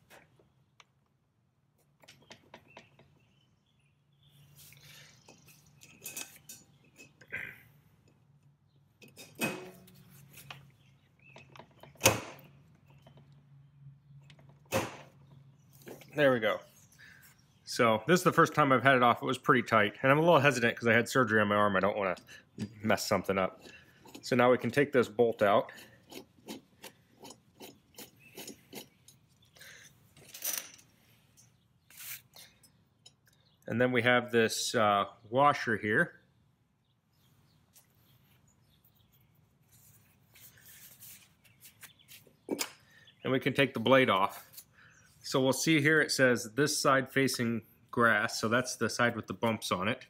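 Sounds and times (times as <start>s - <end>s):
metal tools clinking and knocking: 5.2s - 7.3s, 9.0s - 10.0s, 23.4s - 24.7s, 25.7s - 31.6s
gloved hand scraping metal: 22.6s - 29.8s, 38.9s - 42.5s.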